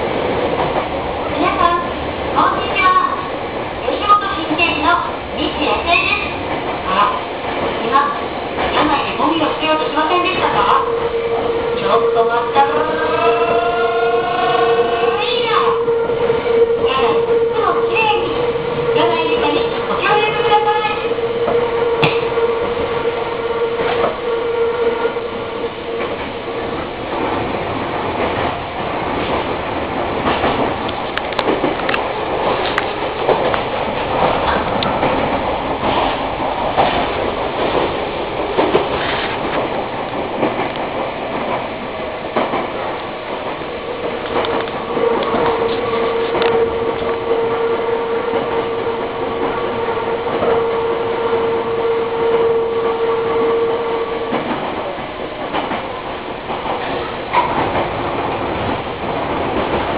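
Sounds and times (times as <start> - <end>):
train running rumble: 0.0 - 59.9
wheels clicking over rail joints: 26.0 - 47.2.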